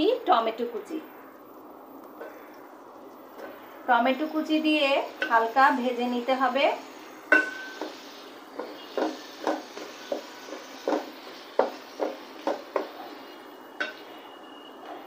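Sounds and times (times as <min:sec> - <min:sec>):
food sizzling in oil: 0:02.2 - 0:15.0
spatula scraping metal pot: 0:07.3 - 0:14.3.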